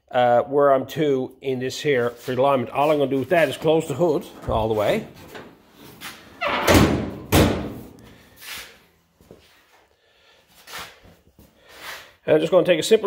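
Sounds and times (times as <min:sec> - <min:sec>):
car hood slamming shut: 0:06.7 - 0:07.8.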